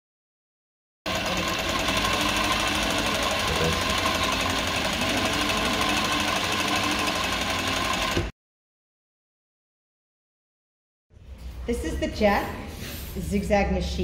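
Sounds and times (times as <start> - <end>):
sewing machine rattling: 1.1 - 8.3.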